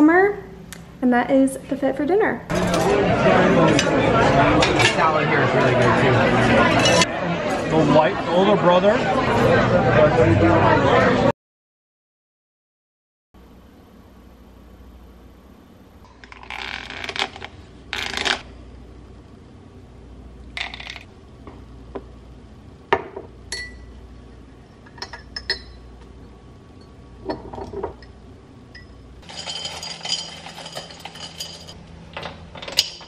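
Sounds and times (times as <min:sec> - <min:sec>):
glassware and utensils clattering: 0:04.6 - 0:05.2, 0:06.6 - 0:07.1, 0:24.8 - 0:25.9, 0:26.8 - 0:33.0
spoon clinking against glass mug: 0:23.5 - 0:23.9, 0:24.8 - 0:25.9, 0:26.8 - 0:31.8.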